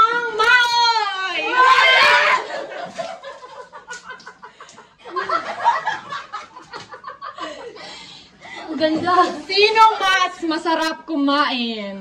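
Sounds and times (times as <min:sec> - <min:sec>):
women laughing hard: 0:01.8 - 0:07.9.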